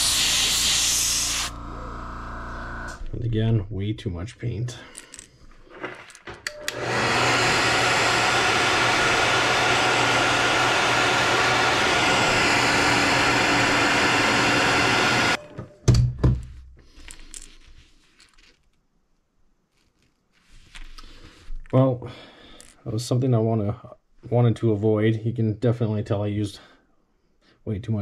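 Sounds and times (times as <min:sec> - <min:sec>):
hair dryer blowing: 0:00.0 - 0:01.7, 0:06.5 - 0:15.4.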